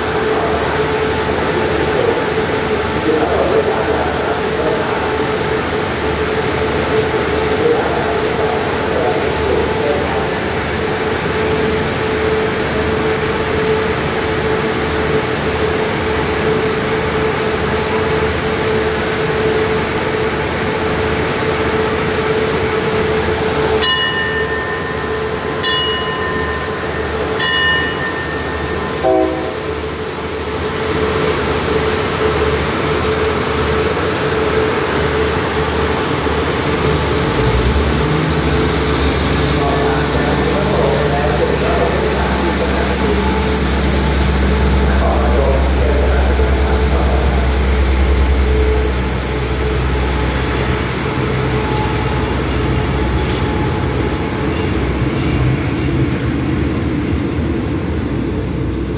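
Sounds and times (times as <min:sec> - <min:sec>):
diesel train idling hum: 0:00.0 - 0:58.9
train horn blasts: 0:29.0 - 0:29.9.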